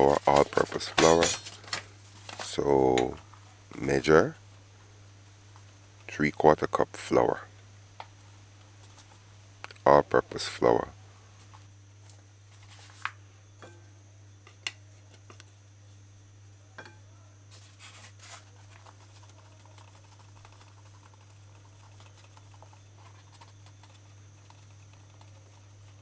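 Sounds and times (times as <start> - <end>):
steady low hum: 0.0 - 26.0
paper bag rustling: 17.5 - 19.4.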